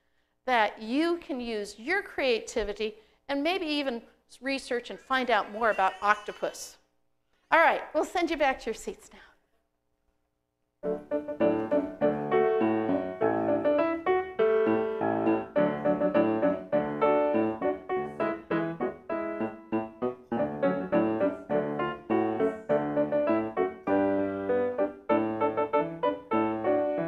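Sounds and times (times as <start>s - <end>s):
piano quick notes: 10.8s - 27.0s.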